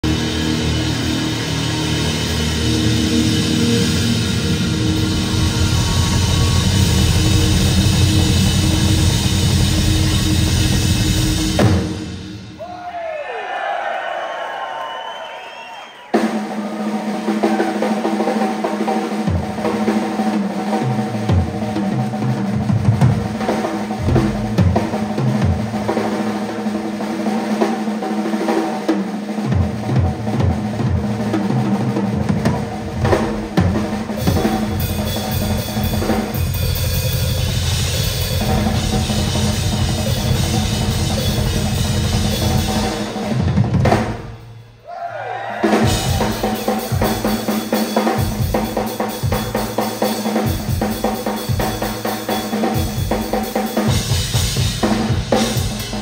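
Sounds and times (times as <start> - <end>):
cymbals washing: 32.5 - 43.4.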